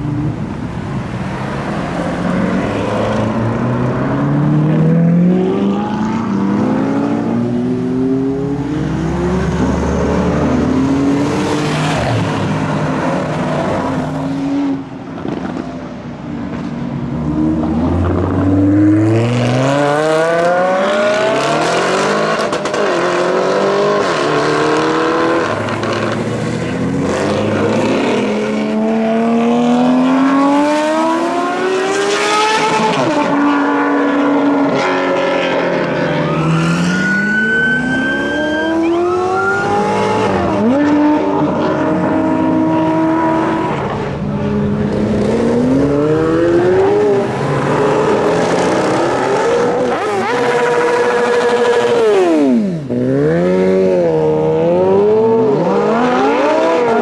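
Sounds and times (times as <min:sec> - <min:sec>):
supercar engines accelerating hard: 0:17.0 - 0:57.0.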